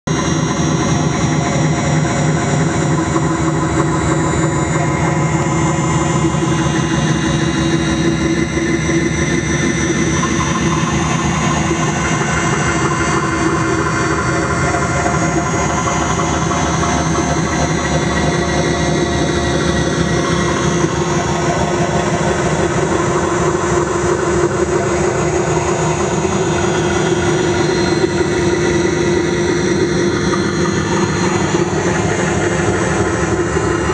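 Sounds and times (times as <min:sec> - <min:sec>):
electronic noise drone: 0:00.1 - 0:33.9.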